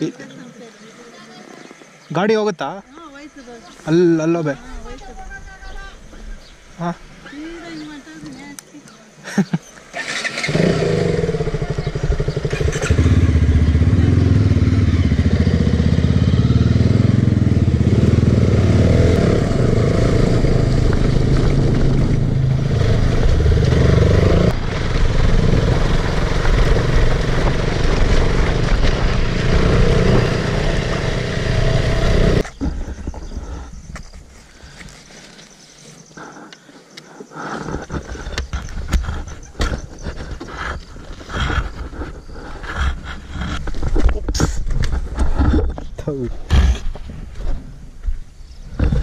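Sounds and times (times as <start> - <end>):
off-road vehicle engine running: 10.0 - 33.8, 37.6 - 47.8.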